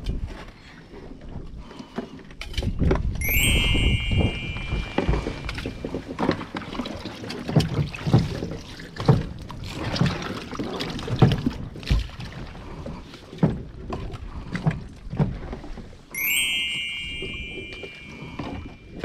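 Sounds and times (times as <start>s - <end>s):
water: 0.0s - 19.0s
wind: 0.0s - 19.0s
knocks and thumps on a boat: 4.7s - 16.0s.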